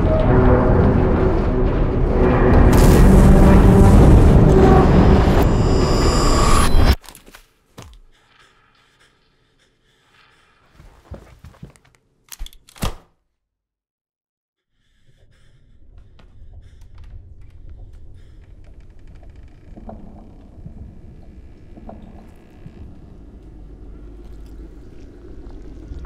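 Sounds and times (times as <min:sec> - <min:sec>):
low rumbling drone: 0:00.0 - 0:07.0, 0:15.3 - 0:26.0.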